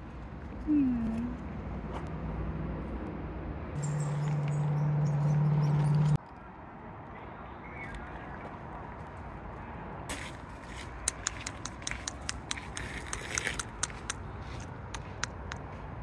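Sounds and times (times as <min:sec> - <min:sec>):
sharp irregular clicks: 0:10.9 - 0:15.7.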